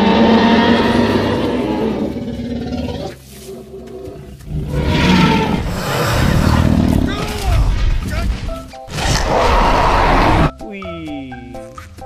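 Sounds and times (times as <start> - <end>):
dinosaur roaring: 0.0 - 7.8, 8.9 - 10.5.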